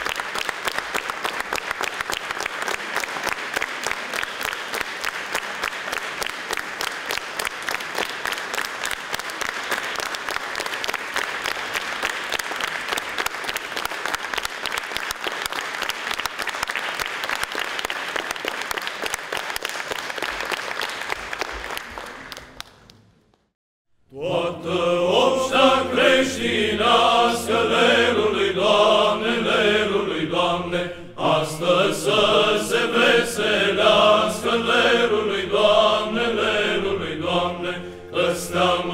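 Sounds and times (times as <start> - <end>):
audience applauding: 0.0 - 23.5
low held vocal drone: 24.1 - 38.9
male choir chanting: 24.1 - 38.9.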